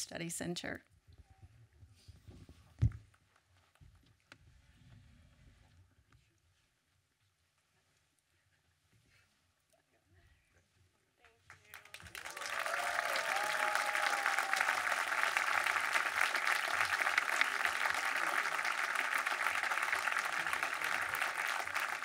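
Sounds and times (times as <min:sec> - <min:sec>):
audience applauding: 0:11.5 - 0:22.0.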